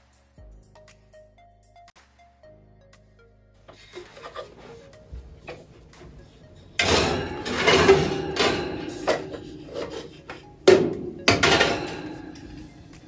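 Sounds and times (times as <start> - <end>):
metal baking pans clanking: 6.6 - 13.0.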